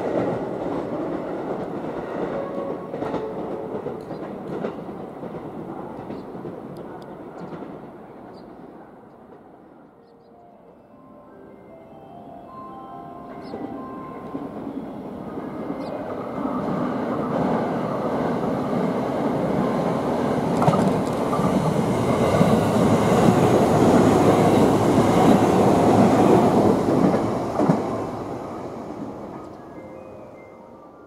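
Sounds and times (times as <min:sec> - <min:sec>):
train wheels rumbling on rails: 0:00.0 - 0:09.9, 0:14.3 - 0:29.7
wheels clacking over rail joints: 0:20.4 - 0:28.1.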